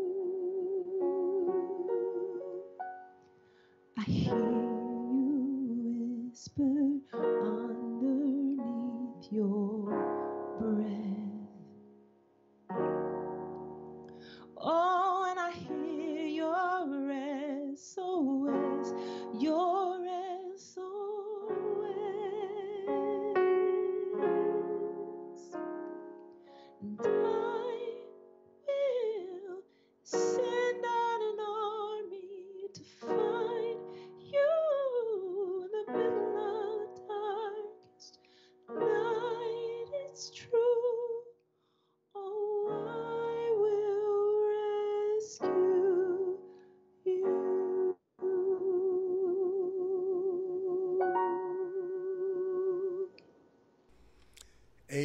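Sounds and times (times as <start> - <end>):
woman singing worship song: 0.0 - 2.4, 4.0 - 11.6, 14.3 - 25.5, 26.8 - 38.2, 38.8 - 41.4, 42.2 - 46.4
keyboard chords: 0.0 - 5.8, 7.0 - 14.6.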